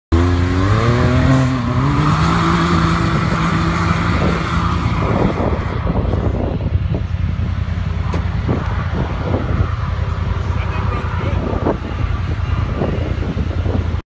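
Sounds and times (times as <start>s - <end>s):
turbocharged engine revving: 0.1s - 6.7s.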